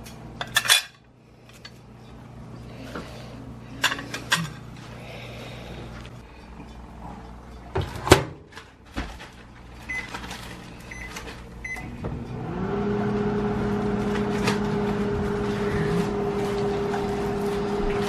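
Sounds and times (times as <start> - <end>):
microwave oven humming: 0.0 - 18.0
microwave keypad beeps: 9.9 - 10.1, 10.9 - 12.0.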